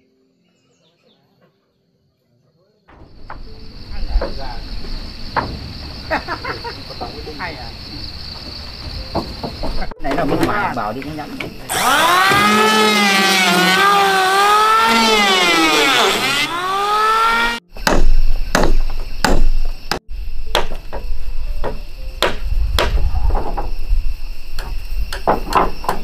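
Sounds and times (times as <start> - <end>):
hammer blows: 11.7 - 20.0.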